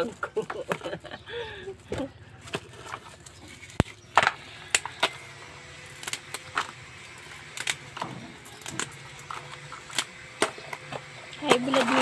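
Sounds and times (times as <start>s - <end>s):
crab shells clicking and clattering: 2.4s - 12.0s.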